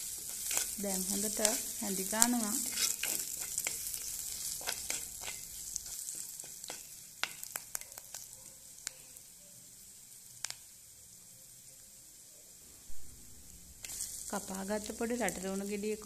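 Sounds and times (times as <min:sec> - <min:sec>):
wooden spoon stirring: 0:00.0 - 0:07.9
oil sizzling in a pot: 0:00.0 - 0:16.0.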